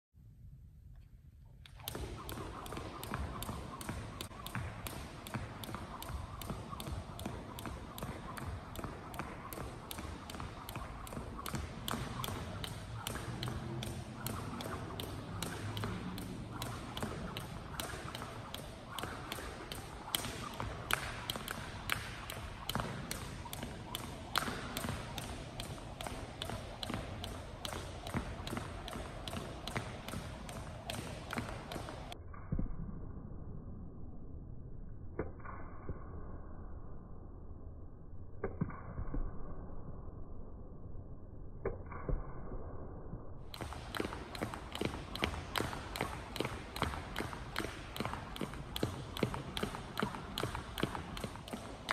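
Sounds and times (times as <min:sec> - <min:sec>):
jump rope slapping wooden floor: 0:01.6 - 0:32.2, 0:43.5 - 0:51.9.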